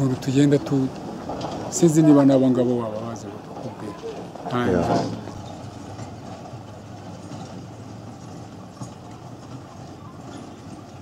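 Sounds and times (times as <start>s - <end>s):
truck engine hum: 0.0s - 11.0s
tyres on dirt road: 0.0s - 11.0s.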